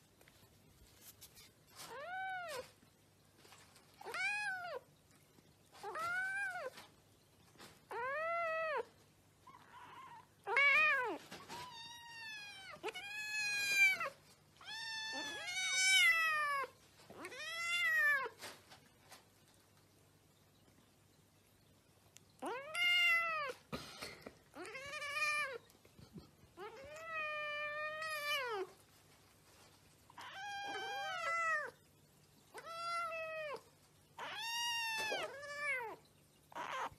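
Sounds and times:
kitten meowing: 9.5 - 18.3, 30.2 - 31.7.

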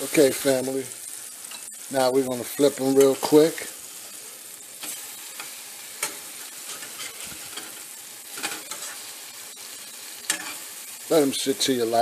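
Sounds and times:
patties sizzling in oil: 0.0 - 12.0
metal spatula scraping pan: 4.8 - 9.1.

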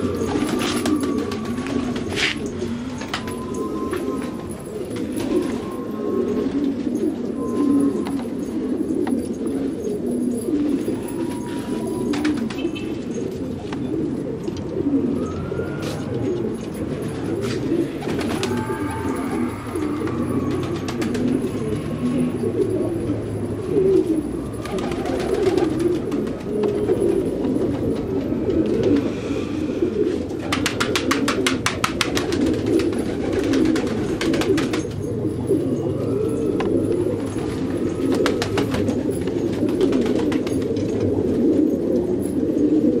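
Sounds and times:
higher gliding bird calls: 0.0 - 13.2, 15.0 - 27.2
pigeons cooing: 0.0 - 43.0.

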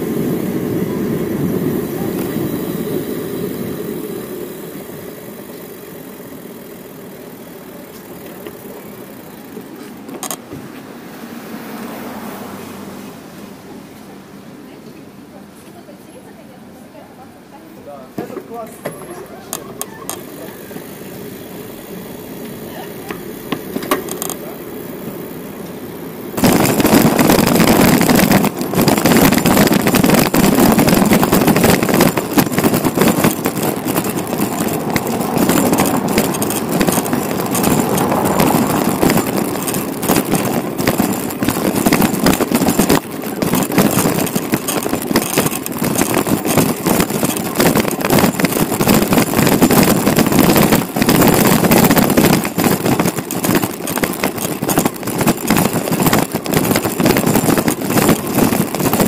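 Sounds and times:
bicycle road noise: 0.0 - 59.0
wind on microphone: 26.4 - 59.0.

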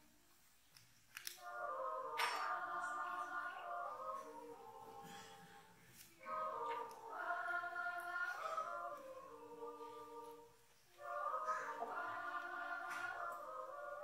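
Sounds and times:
children's choir yodeling: 1.2 - 14.0
singers breathing: 4.9 - 5.9.

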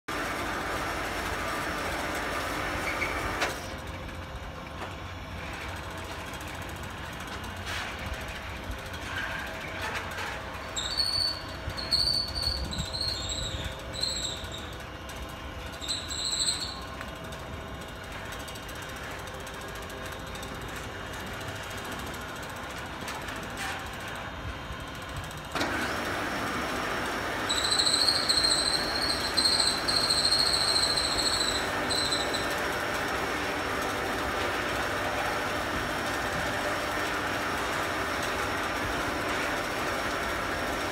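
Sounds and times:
boat hoist motor running: 0.1 - 40.9
high-pitched squeals of moving parts: 9.1 - 14.8, 15.7 - 17.1, 27.4 - 32.7.

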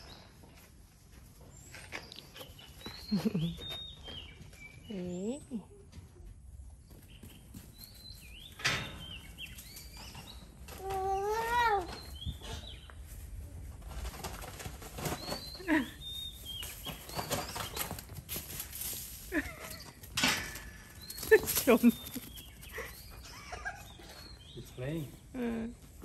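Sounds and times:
birds chirping: 1.4 - 5.8, 6.5 - 13.4, 14.6 - 26.0
rustling: 9.4 - 23.1.

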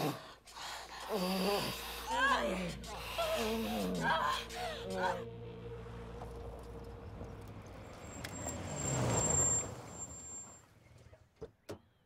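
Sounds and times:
brakes squealing: 2.1 - 11.4
car engine pulling up: 5.3 - 12.0.

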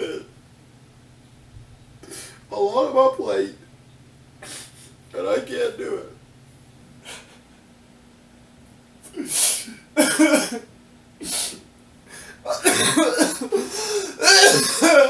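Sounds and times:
man sobbing: 10.0 - 10.6, 12.1 - 15.0.

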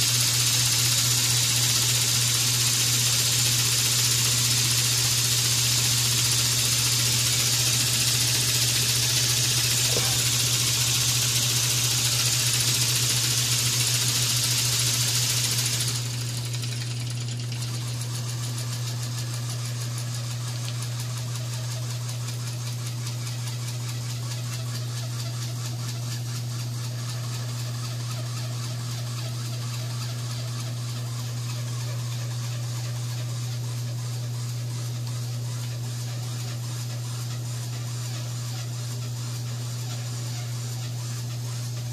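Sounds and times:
steam hissing: 0.0 - 16.8
model steam engine chuffing: 0.0 - 41.9.

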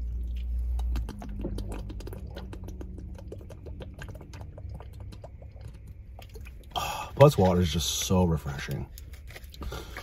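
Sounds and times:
gulping and swallowing: 0.0 - 7.5.

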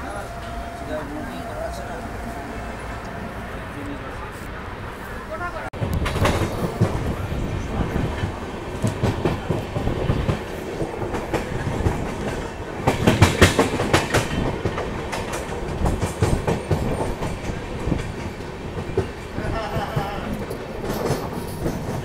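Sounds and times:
train coach rumble: 0.0 - 22.0
wheels clacking over rail joints: 5.8 - 22.0.

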